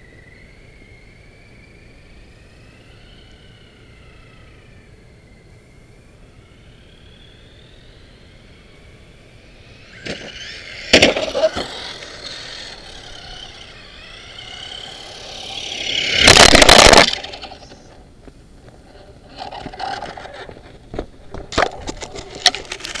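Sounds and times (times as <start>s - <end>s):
electric toy truck motor whining: 6.6s - 18.0s
tyres rushing past: 9.5s - 18.1s.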